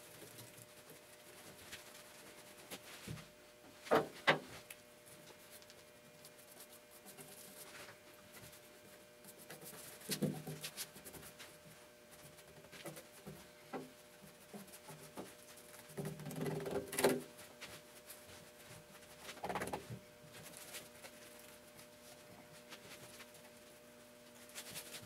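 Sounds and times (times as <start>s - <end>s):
faint steady hum: 0.0s - 25.0s
scrapes and knocks: 12.2s - 21.3s.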